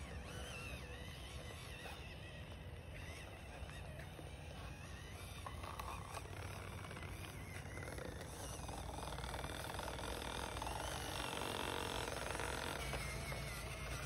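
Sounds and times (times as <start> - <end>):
small electric motor whining: 0.0 - 14.0.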